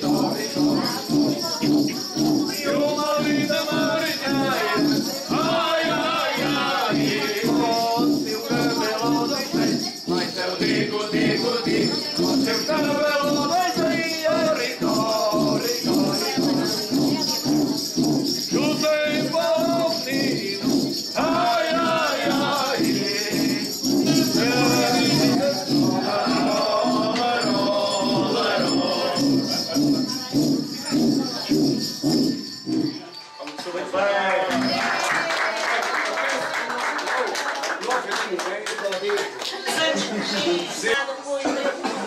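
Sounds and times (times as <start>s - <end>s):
men singing: 0.0s - 33.0s
friction drums pulsing: 0.0s - 33.2s.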